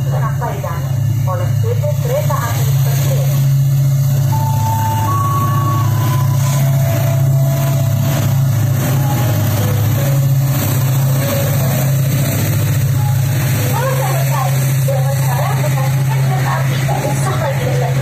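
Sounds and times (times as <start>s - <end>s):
locomotive engine drone: 0.0s - 18.0s
short high tones: 4.2s - 12.2s.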